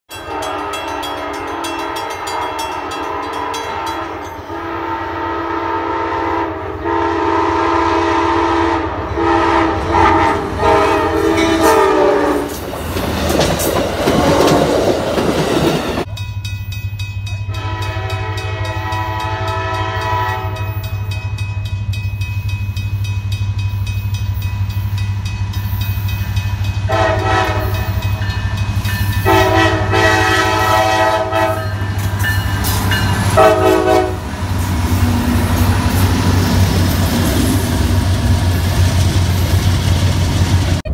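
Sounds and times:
diesel locomotive horn blasts: 0:00.1 - 0:12.5, 0:17.4 - 0:21.6, 0:26.6 - 0:28.4, 0:29.0 - 0:37.2
rushing of passing train cars: 0:00.1 - 0:40.9
locomotive engine drone: 0:17.5 - 0:40.9.

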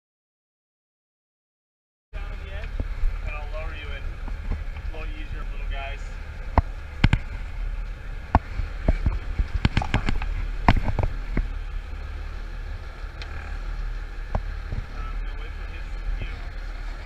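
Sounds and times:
boat engine idling: 0:02.2 - 0:17.0
gear knocking on boat deck: 0:08.2 - 0:11.6.

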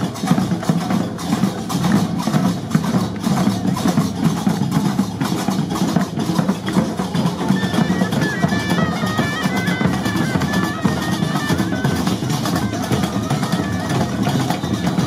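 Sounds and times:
large drums: 0:00.0 - 0:15.0
wind instrument high melody: 0:06.7 - 0:15.0.

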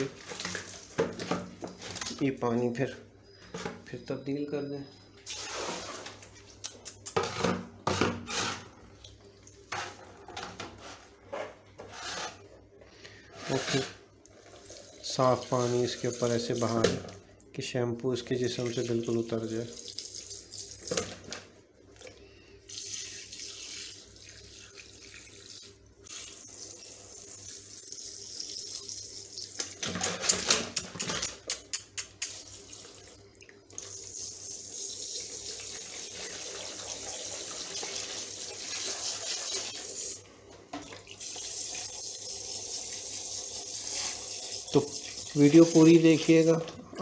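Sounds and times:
water splashing in a tub: 0:00.0 - 0:02.2
shower sprayer hissing: 0:34.0 - 0:40.2.

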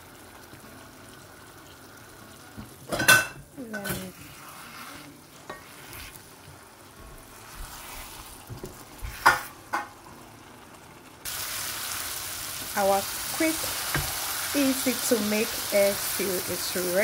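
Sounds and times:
sauce sizzling in a pan: 0:00.0 - 0:17.0
wooden spatula scraping a pan: 0:03.7 - 0:06.6, 0:07.3 - 0:09.6.

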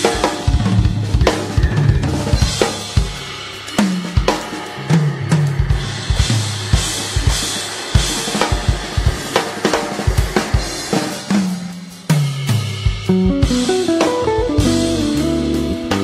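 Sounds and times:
drum kit beat: 0:00.0 - 0:16.0
bass line: 0:13.1 - 0:16.0
melody notes: 0:13.1 - 0:16.0.

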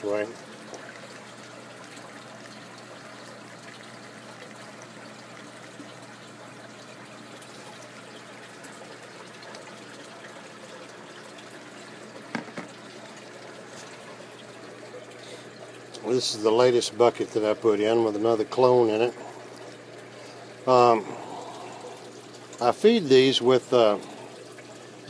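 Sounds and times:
low steady hum: 0:00.0 - 0:25.0
water trickling and pouring: 0:00.0 - 0:25.0
brief knock: 0:12.3 - 0:12.8.

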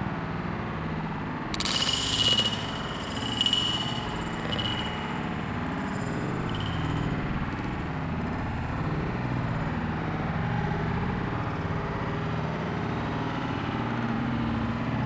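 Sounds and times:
steady engine-like drone: 0:01.6 - 0:08.0.

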